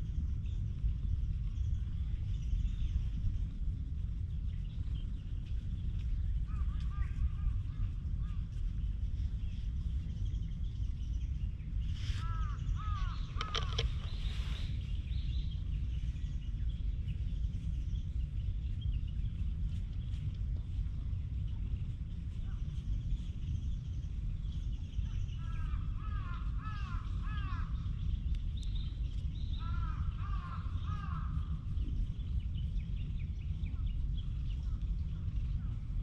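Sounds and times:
low rumble: 0.0 - 36.0
crow cawing: 12.2 - 13.8.

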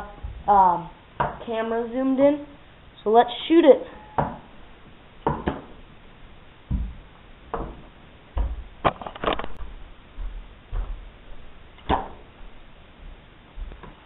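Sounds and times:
dull thumps: 6.7 - 9.7.

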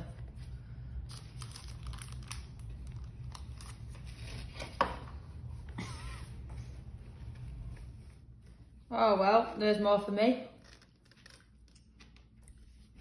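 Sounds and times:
parchment paper crinkling: 0.3 - 4.8, 10.5 - 13.0.

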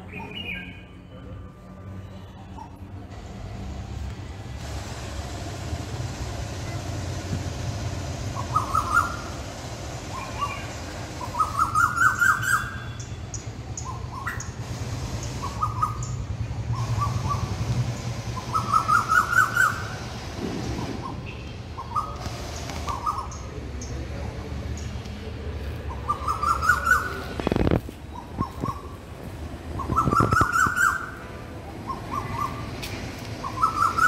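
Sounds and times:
birds chirping: 0.0 - 3.0, 7.8 - 25.2, 25.8 - 34.0
low steady rumble: 2.9 - 21.1.

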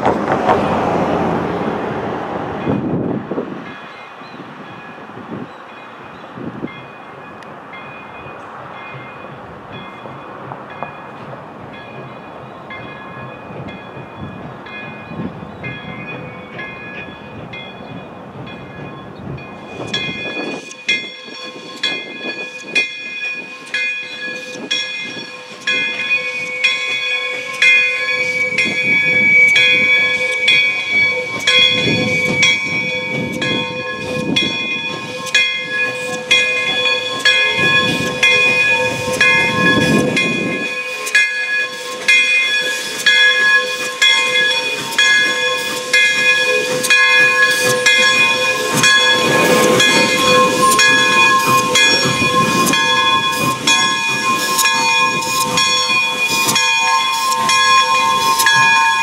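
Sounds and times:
steam locomotive hissing: 6.4 - 59.0
bell ringing: 18.6 - 59.0.

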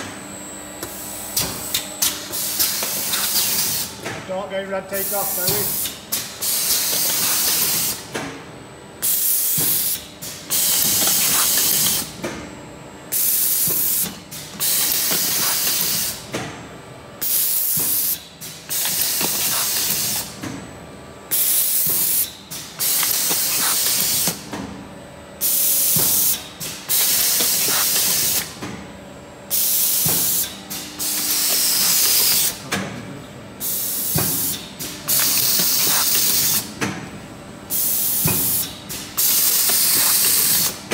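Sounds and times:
compressed air hissing bursts: 26.9 - 28.4.

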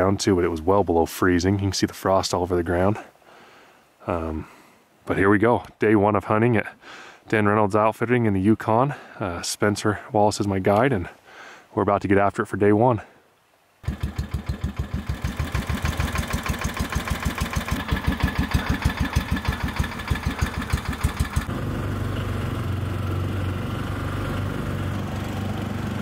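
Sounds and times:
atv engine running: 13.8 - 26.0.

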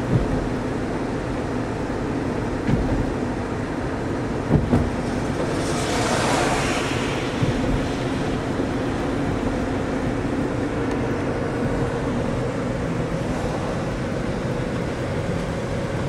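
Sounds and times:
knocks in car cabin: 0.0 - 0.6, 2.6 - 3.2, 4.5 - 5.0
car engine and tyre noise: 0.0 - 16.0.

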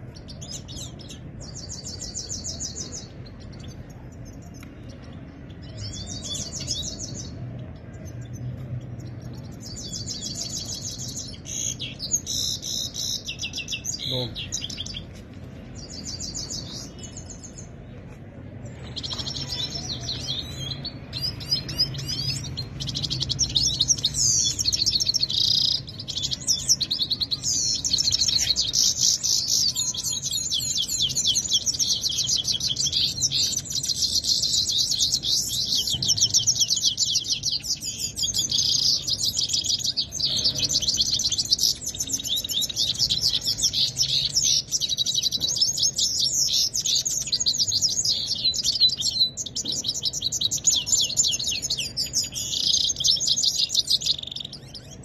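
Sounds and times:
finches trilling and chirping: 18.9 - 55.0.

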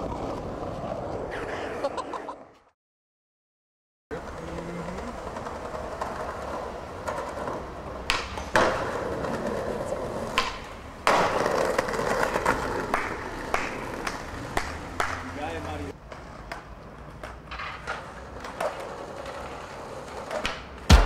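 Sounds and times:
skateboard wheels rolling on paving: 0.0 - 2.7, 4.1 - 20.9
skateboard clacking on ground: 4.2 - 21.0.

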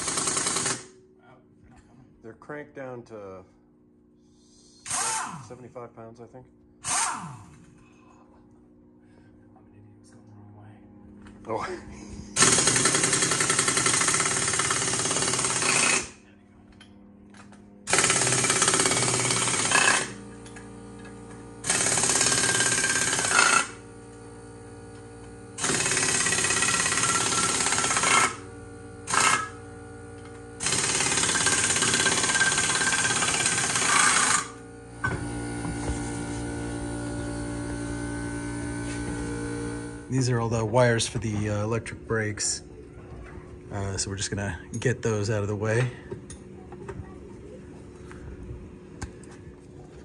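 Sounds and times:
air impact wrench rattling: 0.0 - 0.9, 4.8 - 5.3, 12.4 - 16.2, 17.9 - 23.8, 25.6 - 28.5, 29.1 - 29.6, 30.6 - 34.6.

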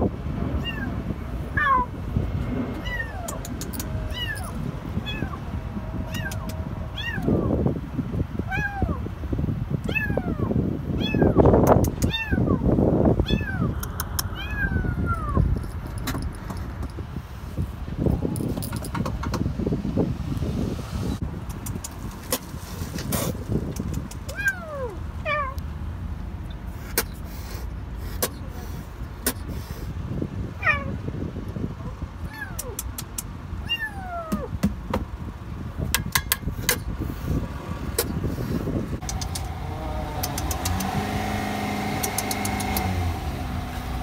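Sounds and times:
vehicle engine hum: 0.0 - 44.0
kitten meowing in distress: 0.6 - 1.0, 1.6 - 1.9, 2.8 - 7.6, 8.5 - 9.0, 9.9 - 11.4, 12.0 - 12.6, 13.2 - 13.7, 14.3 - 15.4, 24.3 - 25.6, 30.6 - 31.0, 32.3 - 32.8, 33.6 - 34.6
sharp clicks: 3.2 - 4.0, 11.6 - 12.2, 13.8 - 14.3, 21.4 - 22.4, 23.6 - 24.6, 32.5 - 33.4, 39.0 - 39.5, 40.2 - 41.0, 42.0 - 42.9.

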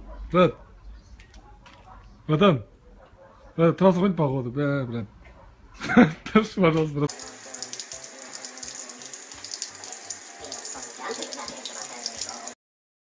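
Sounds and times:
faucet running into sink: 7.1 - 12.6.

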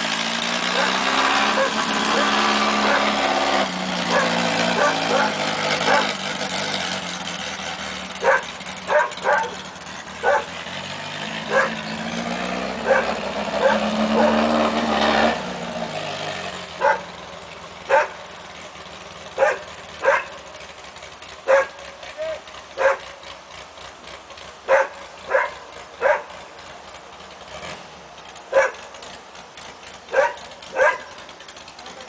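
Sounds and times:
distant engine running: 0.0 - 32.0
dog barking: 0.7 - 3.1, 4.1 - 6.1, 8.2 - 9.6, 10.2 - 10.5, 11.5 - 11.8, 12.8 - 14.4, 16.8 - 17.1, 17.9 - 18.2, 19.4 - 20.4, 21.5 - 21.8, 22.8 - 23.1, 24.7 - 26.3, 28.5 - 28.8, 30.1 - 31.2.

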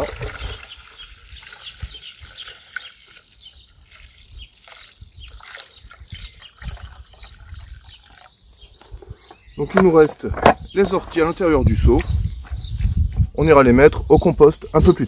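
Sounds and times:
liquid trickling into bucket: 0.0 - 9.1.

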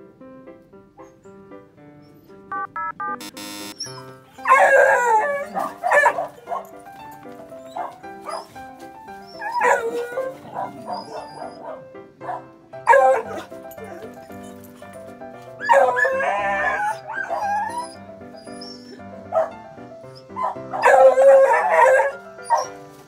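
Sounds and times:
dog barking and howling: 3.9 - 6.8, 7.6 - 14.6, 15.6 - 22.9.

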